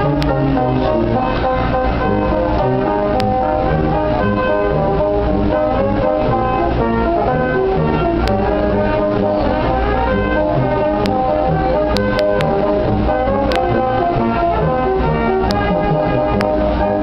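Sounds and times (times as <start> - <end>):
brass band playing: 0.0 - 17.0
sharp clicks: 13.5 - 13.7.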